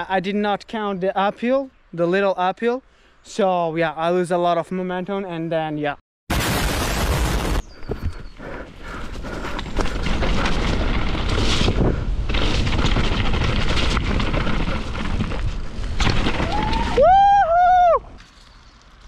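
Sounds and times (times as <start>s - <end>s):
bike tyres rumbling on dirt trail: 6.8s - 17.9s
bike rattles and clicks: 7.8s - 17.0s.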